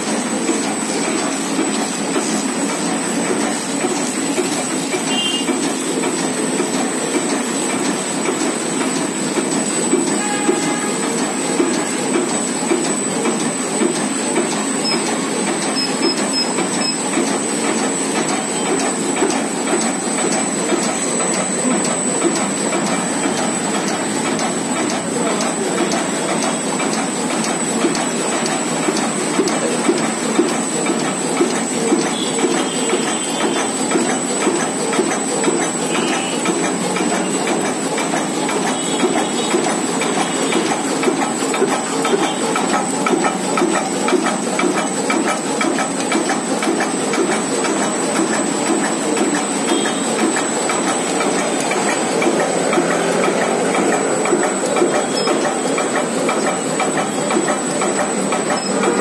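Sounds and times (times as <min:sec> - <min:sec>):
machine clattering: 0:00.0 - 0:59.0.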